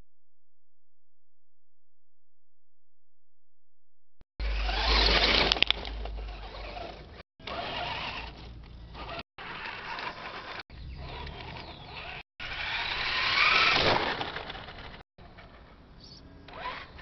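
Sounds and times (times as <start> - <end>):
rc truck motor and gears whining: 4.4 - 17.0.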